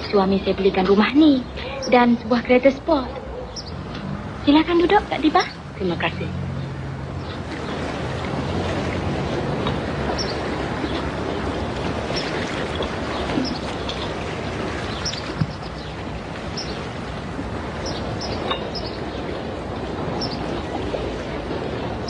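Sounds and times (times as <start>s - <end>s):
wind: 0.0s - 22.0s
bird chirps: 3.2s - 3.8s, 10.2s - 10.4s, 14.9s - 15.9s, 20.2s - 20.5s
sea surf: 3.3s - 22.0s.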